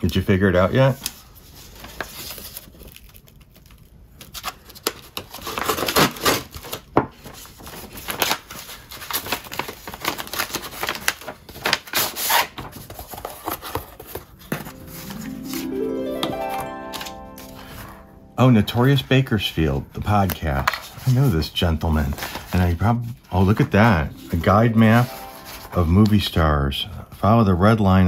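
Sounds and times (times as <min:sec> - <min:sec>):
paper tearing and rustling: 0:01.5 - 0:14.3.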